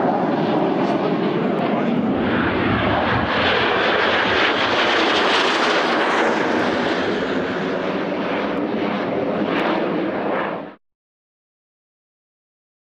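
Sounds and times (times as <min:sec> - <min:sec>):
jet flying past: 0:00.0 - 0:10.8.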